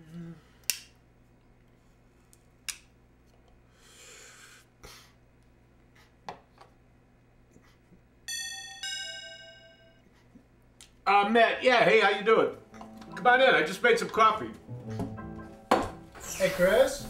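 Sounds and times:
two-note doorbell chime: 8.3s - 10.0s.

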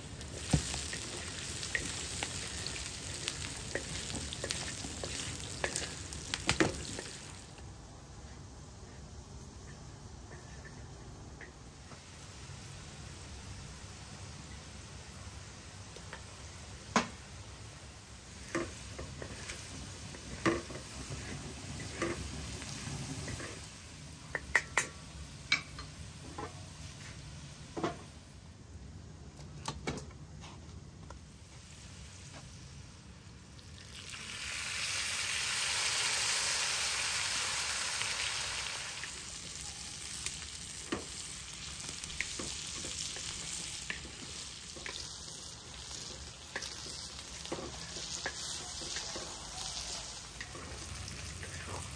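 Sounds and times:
food sizzling in hot oil: 0.0s - 7.6s, 11.8s - 28.3s, 31.2s - 51.9s
spoon scraping griddle pan: 0.3s - 7.2s, 18.4s - 23.7s, 40.7s - 51.9s.

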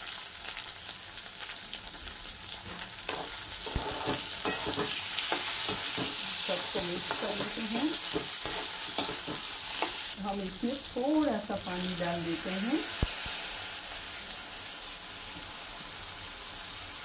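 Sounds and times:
potatoes sizzling in oil: 0.0s - 17.0s
ladle scraping and knocking pan: 3.1s - 10.1s.

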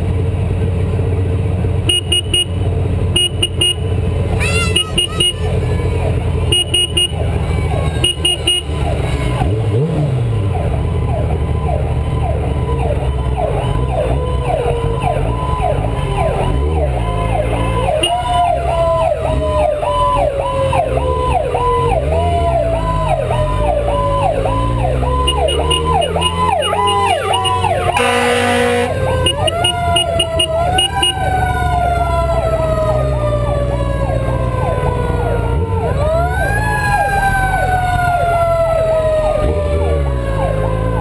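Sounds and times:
loud horn blast: 1.9s - 5.6s, 6.5s - 9.0s, 25.2s - 31.3s
fire engine siren yelping: 3.2s - 41.0s
slower siren tone gliding down: 10.5s - 41.0s.

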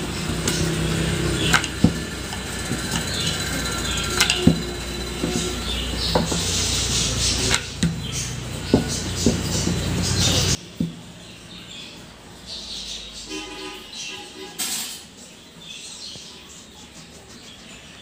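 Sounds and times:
low hum: 0.0s - 10.6s
rolling pin rolling dough: 0.0s - 11.0s
wood knocking on board: 8.7s - 10.0s.

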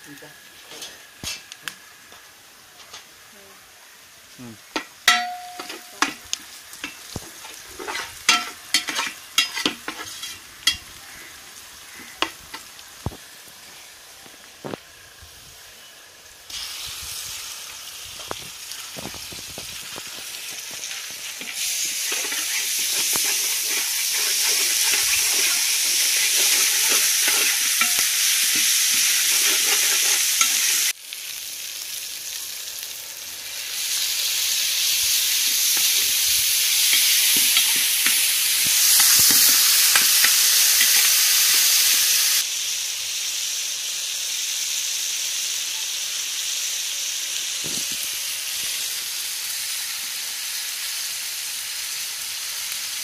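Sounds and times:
onions sizzling in oil: 0.0s - 53.0s
ladle stirring: 21.4s - 28.6s, 29.2s - 30.7s.

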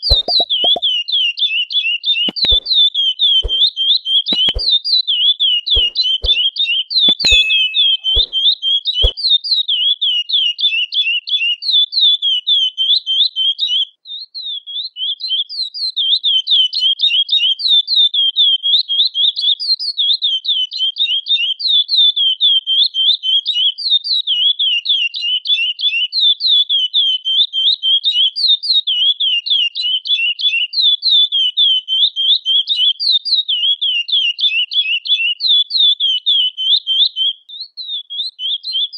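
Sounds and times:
finch singing whistled notes: 0.0s - 0.9s, 2.3s - 4.8s, 5.5s - 9.2s, 27.0s - 38.9s
sharp clicks: 0.1s - 0.8s, 2.3s - 2.7s, 3.4s - 3.6s, 4.3s - 4.8s, 5.8s - 6.4s, 7.1s - 8.4s.

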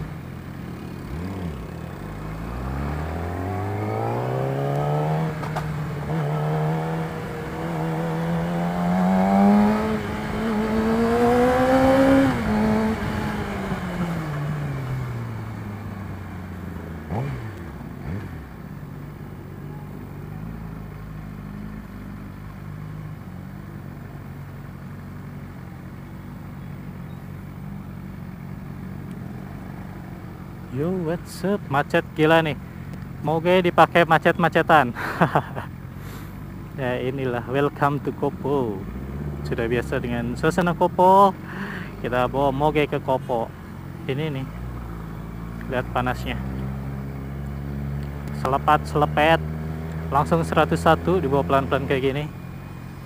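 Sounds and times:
motorcycle engine idling: 0.0s - 2.4s, 14.4s - 47.8s
motorcycle engine revving: 0.0s - 23.2s, 34.6s - 53.0s.

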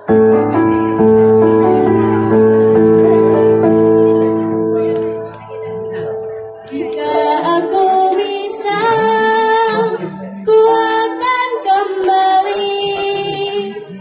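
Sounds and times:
instrumental accompaniment: 0.0s - 14.0s
girl singing pop ballad: 6.7s - 13.8s.

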